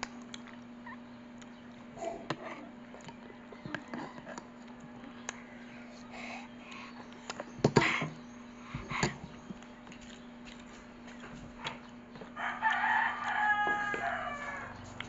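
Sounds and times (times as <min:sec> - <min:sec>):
rooster crowing: 0:12.4 - 0:15.0.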